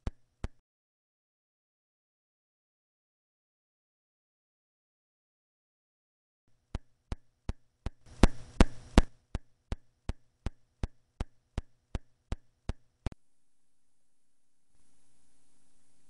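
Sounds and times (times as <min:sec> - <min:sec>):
electrical pops: 0:07.9 - 0:09.2
low hum: 0:13.1 - 0:16.0.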